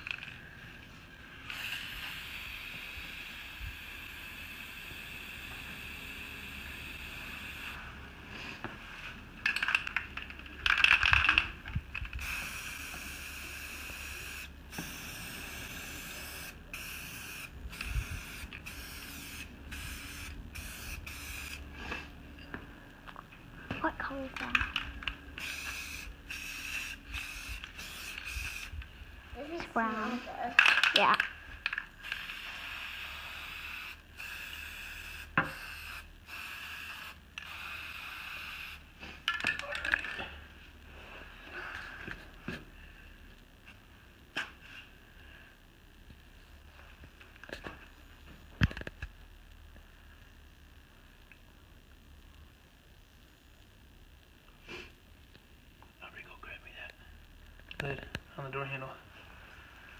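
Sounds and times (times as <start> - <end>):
aerosol spray can hissing: 12.2 - 21.6, 25.4 - 28.7, 32.1 - 38.8.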